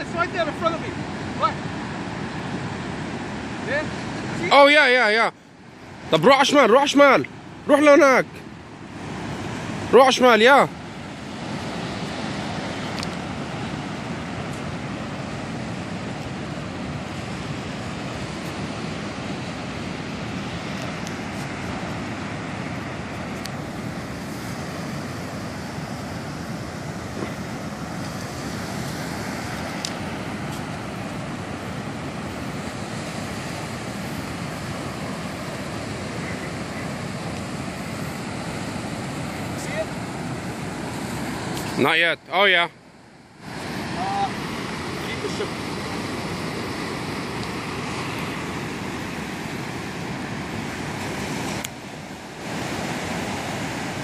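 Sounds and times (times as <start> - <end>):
wind: 0.0 - 54.0.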